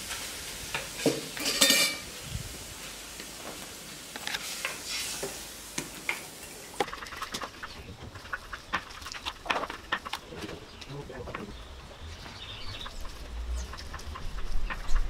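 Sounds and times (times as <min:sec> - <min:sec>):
light hiss: 0:00.0 - 0:07.7
wood fire crackling: 0:00.0 - 0:15.0.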